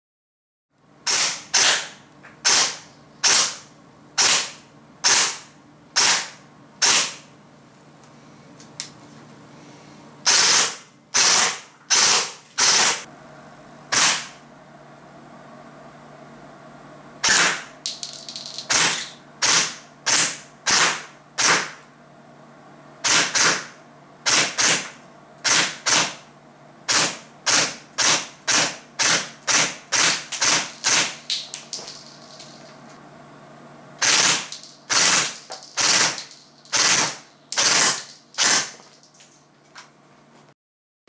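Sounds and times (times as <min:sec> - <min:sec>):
airsoft gun shots: 0:01.0 - 0:03.6, 0:04.2 - 0:07.2, 0:10.3 - 0:13.0, 0:13.9 - 0:14.4, 0:17.2 - 0:17.7, 0:18.7 - 0:21.8, 0:23.0 - 0:26.2, 0:26.9 - 0:31.2, 0:34.0 - 0:38.8.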